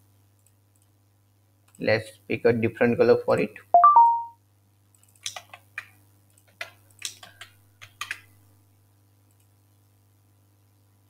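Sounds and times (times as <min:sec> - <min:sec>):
short electronic chime: 0:03.8 - 0:04.4
keyboard key clicks: 0:05.2 - 0:05.9.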